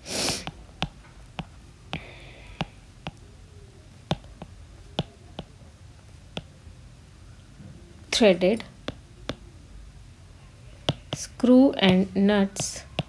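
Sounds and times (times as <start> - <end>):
stylus tapping on glass screen: 10.9 - 11.3.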